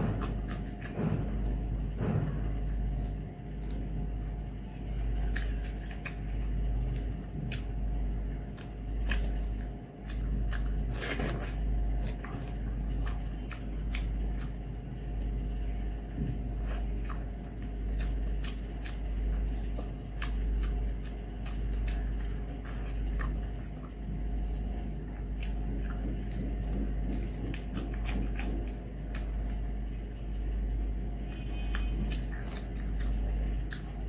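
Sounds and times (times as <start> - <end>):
person chewing: 0.0 - 1.6, 2.5 - 29.9, 31.2 - 34.0
steady low hum: 0.0 - 34.0
fingers squishing food: 2.6 - 30.0, 30.9 - 34.0.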